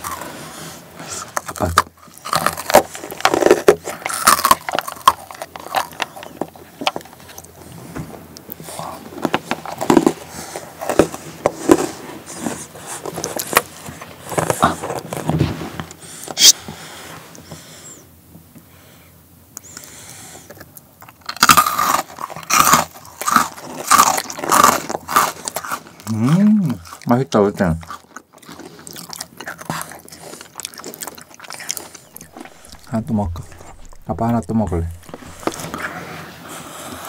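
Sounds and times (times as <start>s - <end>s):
fingers picking coated strawberries: 31.6s - 35.7s.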